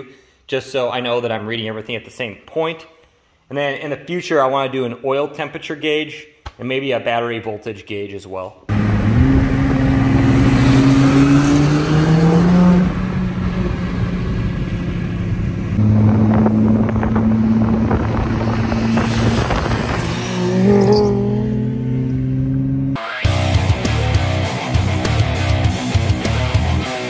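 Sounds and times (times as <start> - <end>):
car engine accelerating: 8.7 - 26.9.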